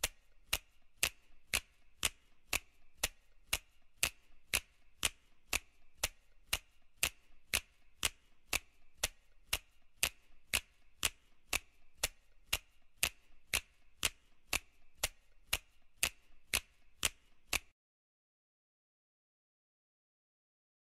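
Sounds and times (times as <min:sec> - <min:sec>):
steady ticking: 0:00.0 - 0:17.7.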